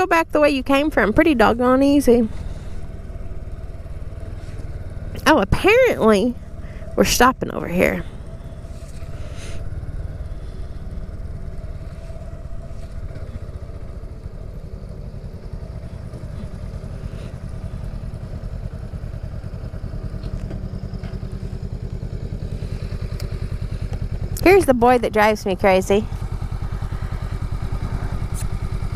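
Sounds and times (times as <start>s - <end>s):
motorcycle engine idling: 0.0s - 28.9s
second motorcycle rolling up: 0.7s - 28.9s.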